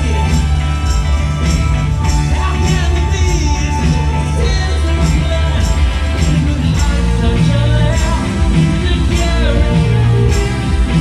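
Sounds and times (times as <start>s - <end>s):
keyboards: 0.0s - 11.0s
rock band playing live: 0.0s - 11.0s
person singing: 2.1s - 11.0s.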